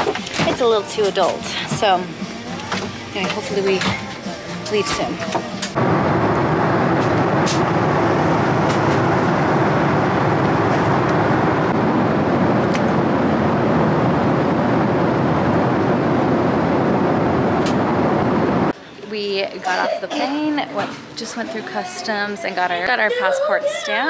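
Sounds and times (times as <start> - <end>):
jet airliner cabin noise: 0.0 - 18.8.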